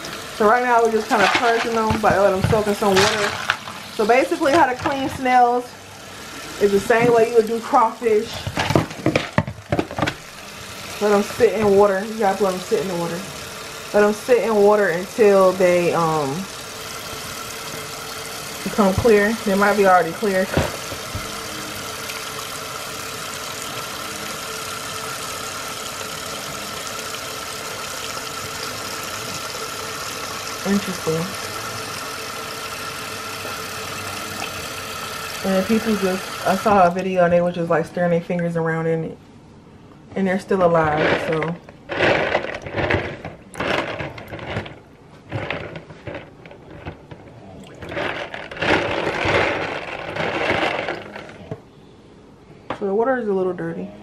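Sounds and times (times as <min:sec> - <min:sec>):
tap water splashing: 0:00.0 - 0:37.1.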